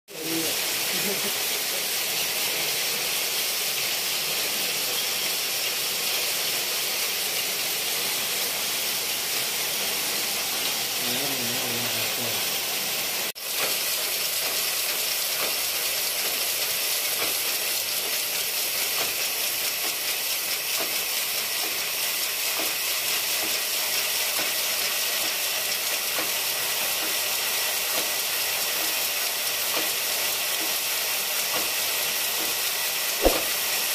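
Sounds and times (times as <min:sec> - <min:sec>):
knitting machine mechanical hiss: 0:00.1 - 0:33.9.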